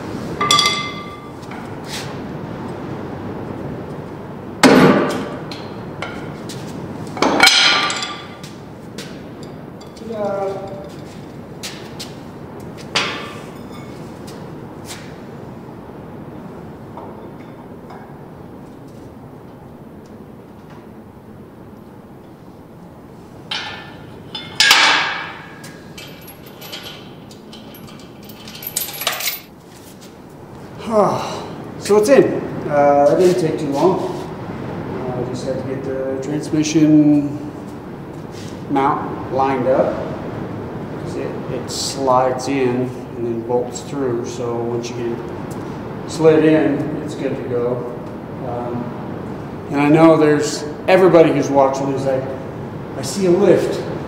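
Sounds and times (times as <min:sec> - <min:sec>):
hammer striking metal: 0:00.4 - 0:01.3, 0:23.5 - 0:27.1
metallic ringing: 0:00.4 - 0:01.4, 0:13.0 - 0:14.0, 0:23.5 - 0:29.5
metal tools clanking: 0:00.4 - 0:01.5, 0:07.2 - 0:08.5, 0:09.4 - 0:11.3, 0:13.0 - 0:14.0, 0:23.5 - 0:29.6
light metal clinks: 0:23.5 - 0:29.5.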